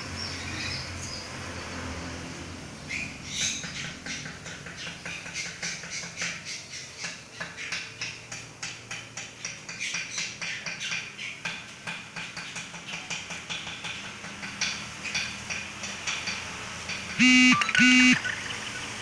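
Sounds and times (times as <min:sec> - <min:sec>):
songbirds chirping: 0:02.6 - 0:11.5.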